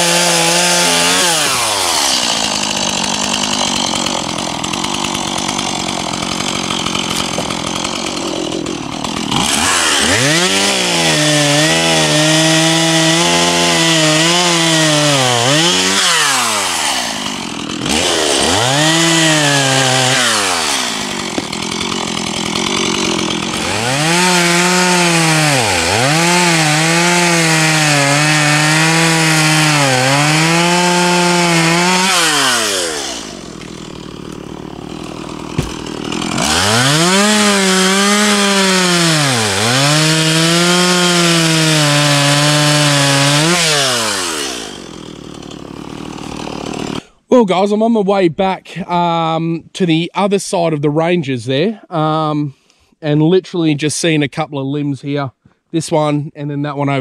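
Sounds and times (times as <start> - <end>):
chainsaw cutting log: 0.0 - 47.2.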